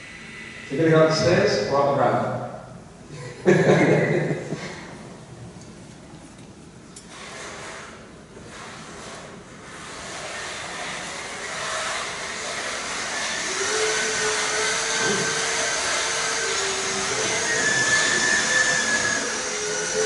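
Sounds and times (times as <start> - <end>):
electric track motors whining: 8.5 - 20.0.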